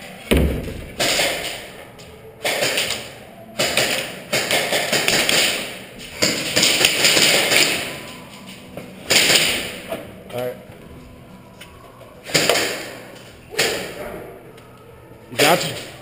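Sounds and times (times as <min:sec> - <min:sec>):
airsoft gun rapid fire echoing: 0:03.6 - 0:08.0, 0:09.1 - 0:09.8.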